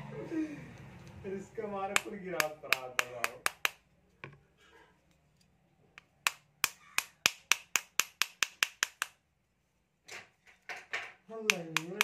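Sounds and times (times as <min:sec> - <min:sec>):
small hammer tapping steel: 0:01.9 - 0:03.8, 0:06.0 - 0:09.2, 0:11.5 - 0:12.0.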